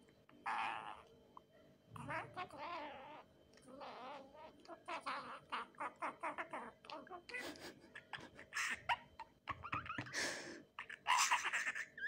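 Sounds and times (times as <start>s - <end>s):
budgerigar chattering: 8.0s - 10.1s.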